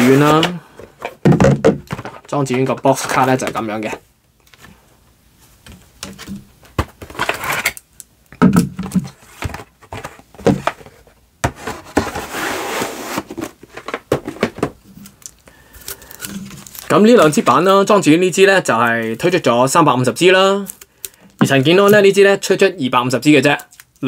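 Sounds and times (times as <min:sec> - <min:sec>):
rubbing and sliding: 0:00.0 - 0:01.2, 0:09.1 - 0:14.6.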